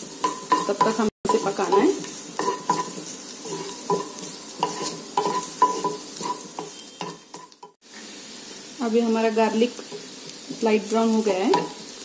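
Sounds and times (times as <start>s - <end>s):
spatula scraping a frying pan: 0.0s - 7.8s
garlic sizzling in oil: 0.0s - 12.0s.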